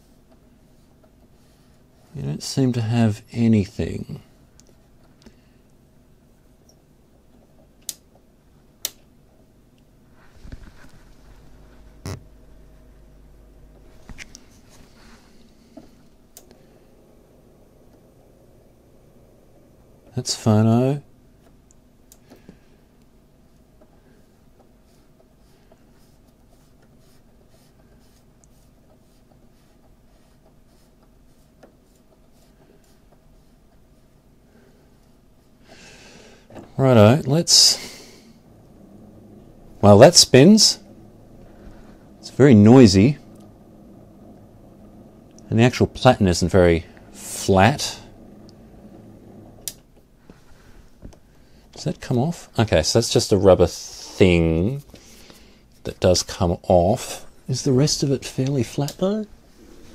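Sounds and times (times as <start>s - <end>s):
faint low hum: 0.0s - 59.9s
faint steady hiss: 0.0s - 59.9s
scratchy speaker crackle: 10.2s - 12.4s.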